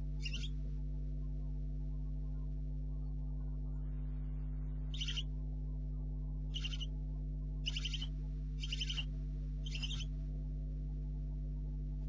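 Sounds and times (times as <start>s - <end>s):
electrical hum: 0.0s - 12.0s
owlets hissing begging calls: 0.2s - 0.5s, 5.0s - 5.2s, 6.6s - 6.8s, 7.7s - 9.0s, 9.7s - 10.0s.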